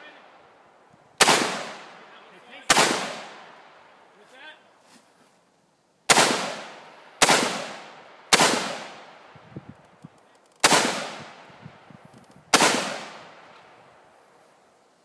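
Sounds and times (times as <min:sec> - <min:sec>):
rifle shots echoing: 0:01.2 - 0:02.1, 0:02.7 - 0:03.8, 0:06.1 - 0:09.3, 0:10.6 - 0:11.5, 0:12.5 - 0:13.6.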